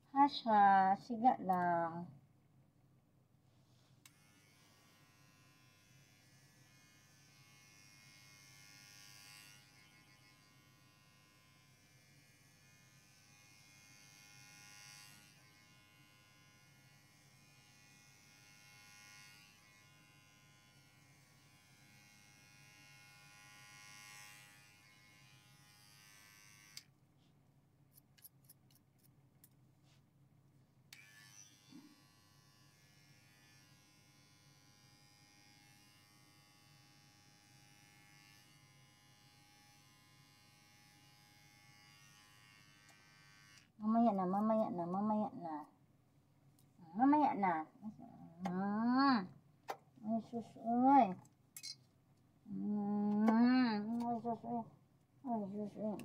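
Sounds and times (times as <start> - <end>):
electric hair clipper buzzing: 4.0 - 26.9, 30.9 - 43.8.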